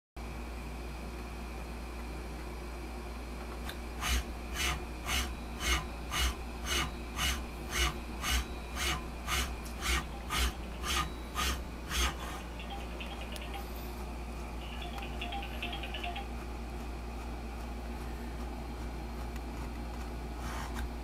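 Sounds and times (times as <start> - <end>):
steady low hum: 0.2 - 21.0
servo motor whirring rasp: 4.0 - 12.4.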